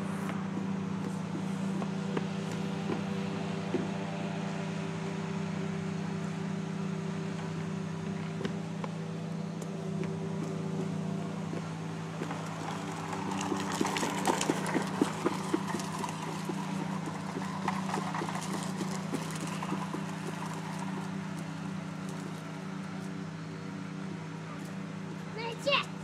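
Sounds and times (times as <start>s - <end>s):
steady machine hum: 0.0s - 26.0s.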